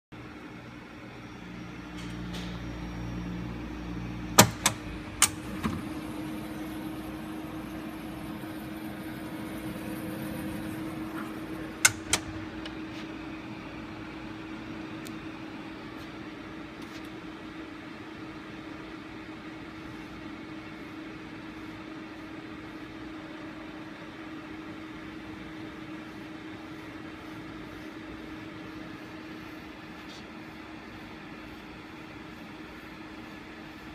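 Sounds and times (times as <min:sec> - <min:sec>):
centrifuge humming: 0:00.2 - 0:13.5
sharp clicks: 0:11.8 - 0:12.4.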